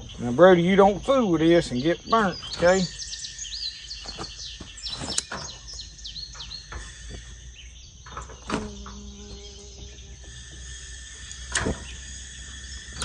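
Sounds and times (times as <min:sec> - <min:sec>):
birds chirping: 0:00.0 - 0:13.0
insect drone: 0:00.0 - 0:13.0.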